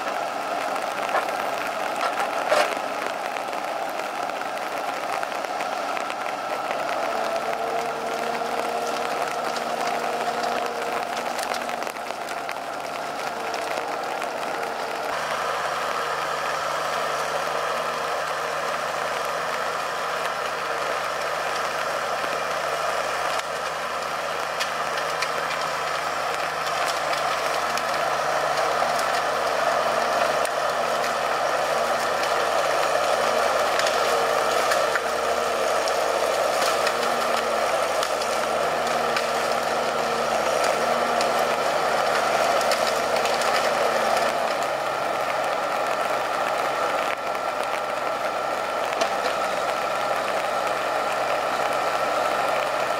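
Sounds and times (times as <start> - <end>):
diesel engine running: 0.0 - 52.9.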